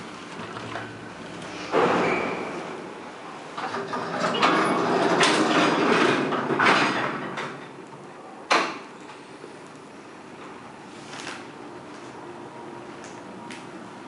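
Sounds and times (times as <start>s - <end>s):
elevator mechanical rattling: 0.0s - 8.1s
elevator running noise: 0.0s - 14.0s.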